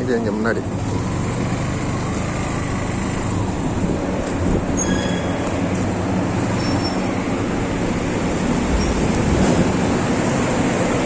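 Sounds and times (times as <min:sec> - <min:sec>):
road rumble: 0:00.0 - 0:11.0
motorbike engine running: 0:00.4 - 0:04.8
faint short squeals: 0:04.7 - 0:05.5.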